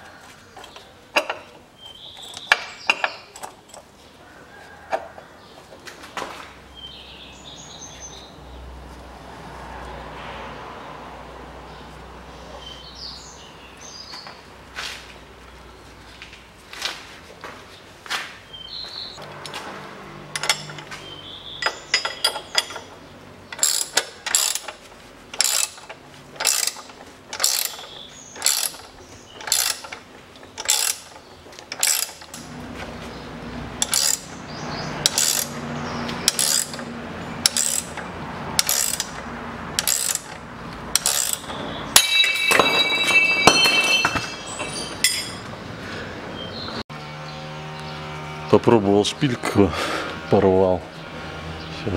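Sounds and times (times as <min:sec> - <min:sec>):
ratchet wrench clicking: 0:20.4 - 0:20.9, 0:23.5 - 0:32.4, 0:33.8 - 0:34.4, 0:35.0 - 0:35.6, 0:36.2 - 0:42.2.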